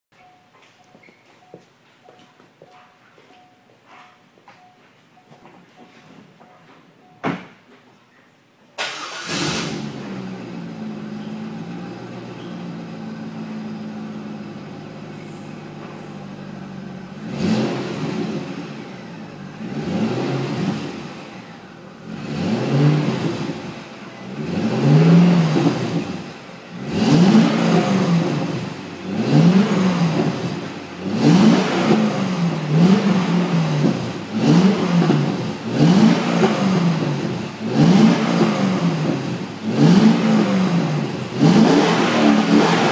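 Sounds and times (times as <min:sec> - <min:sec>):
car engine revving: 0:08.8 - 0:42.9
car engine starting and idling: 0:08.8 - 0:42.9.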